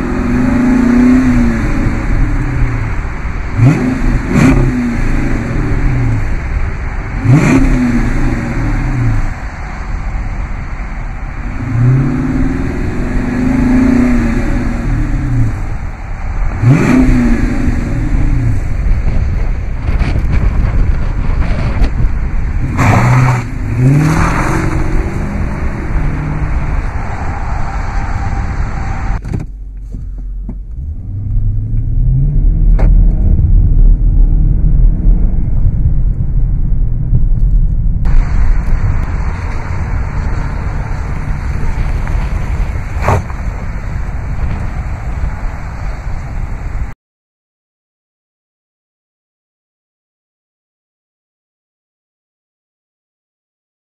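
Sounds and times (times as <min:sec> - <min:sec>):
car engine revving: 0:00.0 - 0:46.9
engine rumble heard from cabin: 0:24.6 - 0:47.0.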